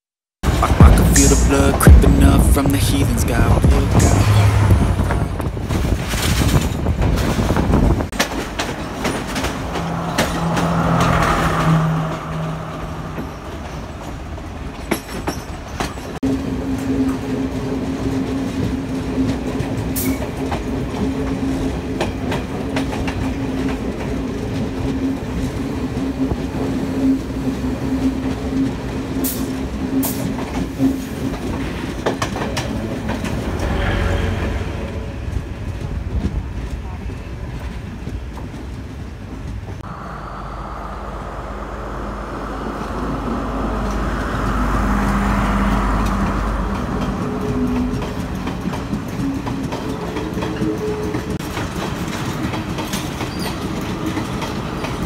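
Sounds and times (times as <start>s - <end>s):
train carriage rumble: 0.4s - 55.0s
train wheels clattering over rail joints: 5.4s - 11.5s, 13.1s - 39.8s, 46.0s - 55.0s
steady low hum: 39.8s - 44.6s.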